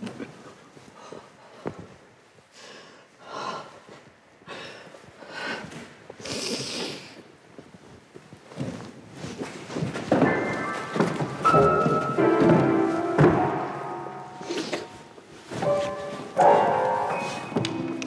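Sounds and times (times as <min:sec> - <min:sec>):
people breathing heavily: 0:00.8 - 0:07.3, 0:14.3 - 0:16.3
music: 0:10.3 - 0:15.0, 0:15.6 - 0:18.0.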